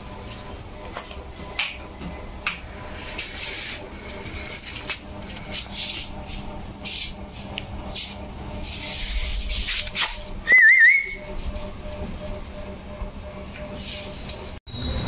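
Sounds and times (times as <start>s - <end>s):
short wavering whistle: 10.4s - 11.2s.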